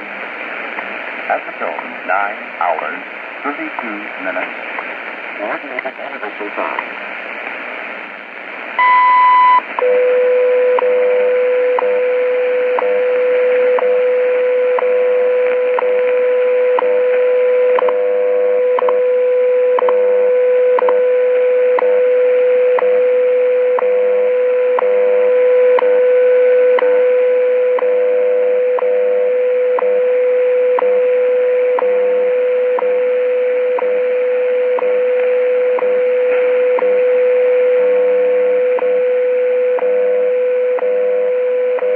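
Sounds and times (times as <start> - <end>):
radio static hiss: 0.0 - 9.9, 11.3 - 41.9
high beep: 8.8 - 10.0.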